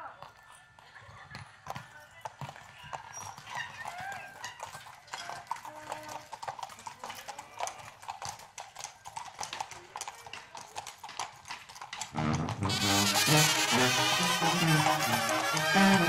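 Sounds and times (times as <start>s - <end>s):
horse hooves on pavement: 0.0s - 16.0s
brass band music: 12.1s - 16.0s.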